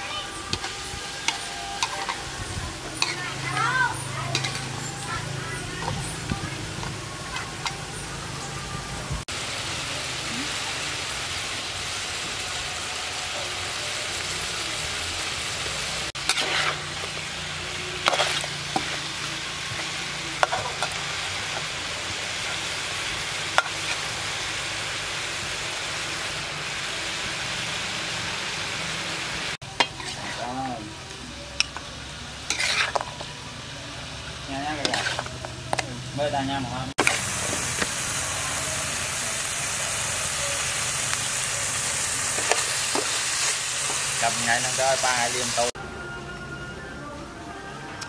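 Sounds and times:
meat sizzling in a wok: 0.0s - 45.8s
metal spatula scraping a pan: 0.2s - 6.2s, 16.2s - 21.6s, 29.6s - 31.8s, 32.4s - 33.4s, 34.4s - 36.4s.

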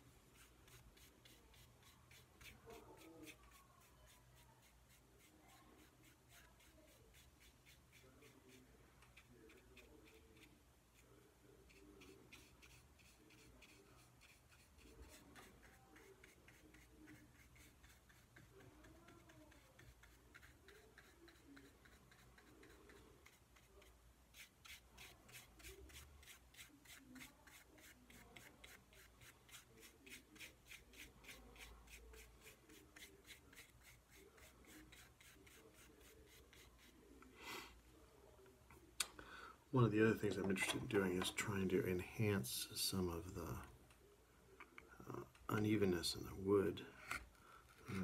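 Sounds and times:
paintbrush rubbing on wood: 0.0s - 37.1s.

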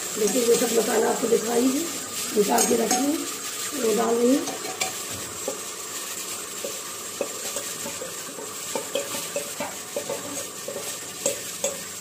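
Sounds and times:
spices sizzling in hot oil: 0.0s - 12.0s
steel spoon clinking on metal: 4.4s - 5.6s, 8.7s - 11.9s.

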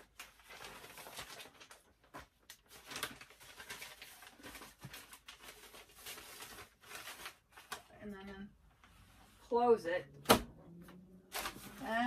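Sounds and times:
newspaper rustling and crinkling: 0.0s - 8.2s, 11.3s - 12.0s.

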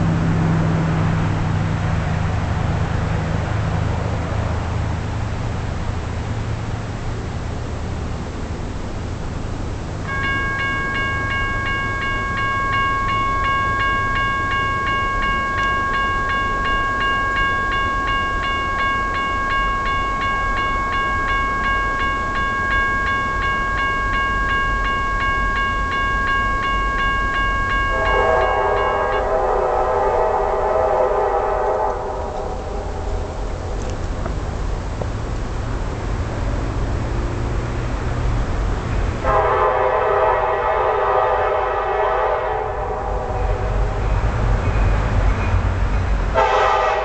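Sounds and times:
railroad crossing bell ringing: 9.8s - 47.0s
locomotive horn blast: 27.9s - 33.3s, 39.2s - 44.2s, 46.3s - 47.0s.

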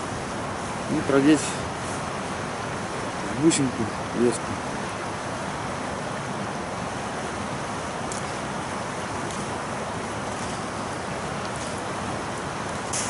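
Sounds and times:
river water rushing: 0.0s - 13.0s
faint small ticks: 8.1s - 8.4s.

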